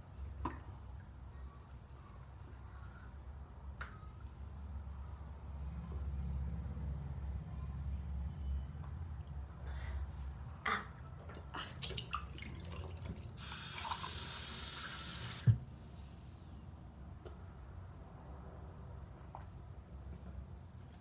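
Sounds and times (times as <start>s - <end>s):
water running from a tap: 13.4s - 15.5s.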